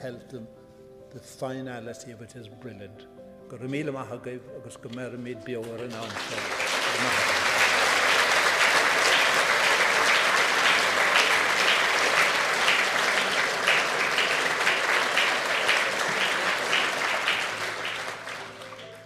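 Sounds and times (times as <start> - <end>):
audience applauding: 5.6 - 19.0.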